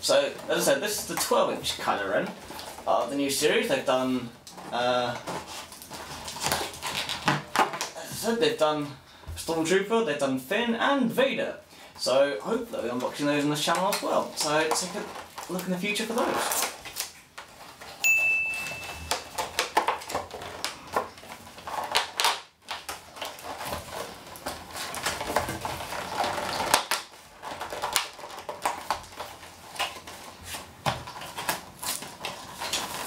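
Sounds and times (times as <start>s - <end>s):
cardboard and plastic packaging rustling: 0.0s - 9.9s, 11.3s - 33.0s
tape peeling off cardboard: 19.1s - 33.0s.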